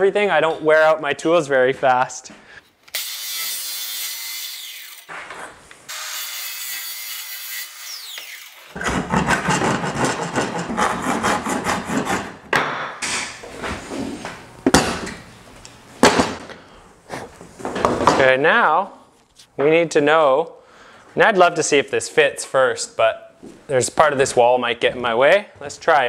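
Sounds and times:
circular saw cutting wood: 0:02.9 - 0:05.1, 0:05.9 - 0:12.3
handsaw strokes: 0:05.9 - 0:12.4
sharp knocks: 0:12.0 - 0:13.4.

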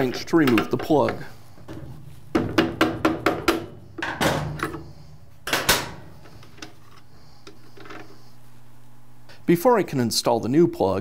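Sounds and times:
metal knocks: 0:01.7 - 0:04.7.

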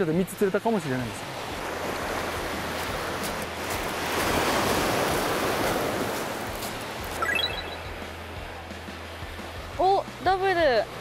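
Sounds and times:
surf on a pebbly beach: 0:00.0 - 0:11.0
short rising chime: 0:07.2 - 0:07.9.

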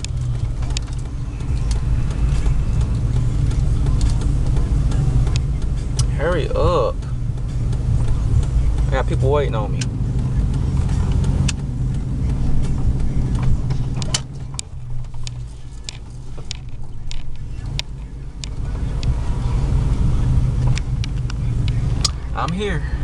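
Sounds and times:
light clicks and rattles: 0:00.0 - 0:22.8
truck engine droning: 0:00.0 - 0:23.0.

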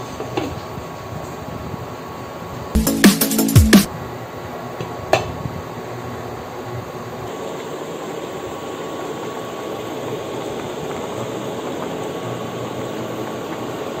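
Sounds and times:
broth boiling and bubbling: 0:09.6 - 0:14.0.

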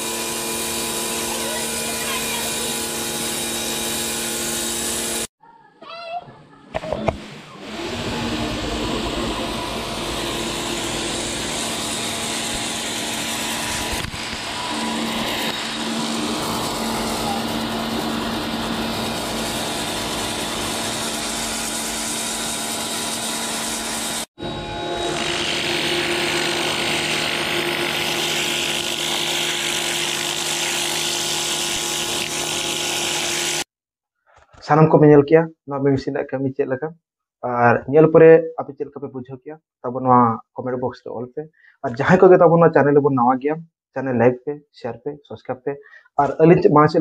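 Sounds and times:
pressure washer motor humming: 0:00.0 - 0:05.3, 0:07.0 - 0:33.6.

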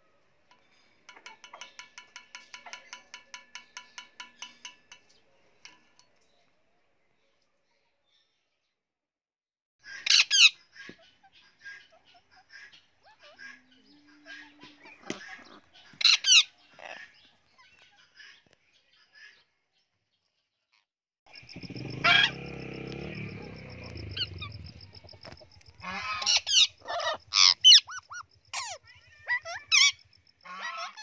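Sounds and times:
parrots screeching and squawking: 0:09.9 - 0:18.3, 0:22.0 - 0:22.4, 0:25.2 - 0:31.0
low rumble: 0:21.4 - 0:25.8.

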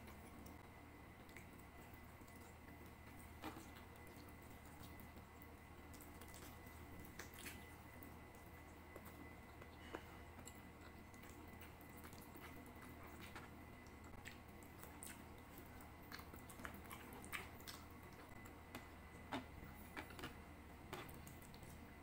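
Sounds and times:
chewing and wet mouth sounds: 0:00.0 - 0:22.0
faint steady hum: 0:00.0 - 0:22.0
small clicks and smacks: 0:01.2 - 0:09.8.

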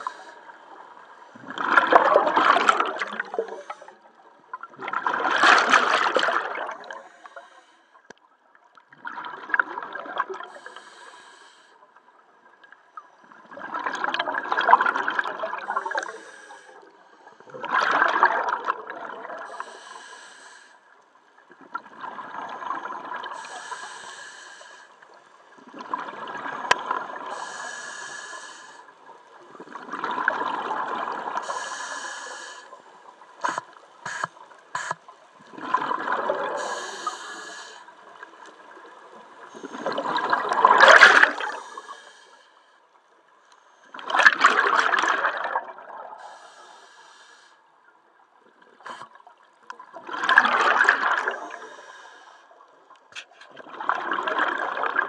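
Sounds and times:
diver exhaling bubbles: 0:01.4 - 0:03.9, 0:04.8 - 0:07.2, 0:33.4 - 0:37.7, 0:39.6 - 0:41.9
regulator hiss: 0:36.6 - 0:37.8.

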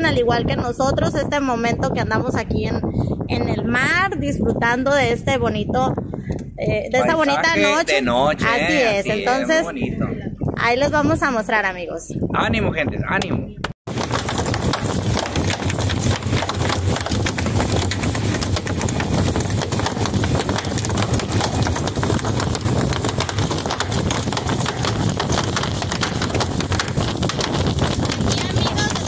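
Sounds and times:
wind buffeting microphone: 0:00.0 - 0:29.0
hull slapping water: 0:13.9 - 0:29.0.

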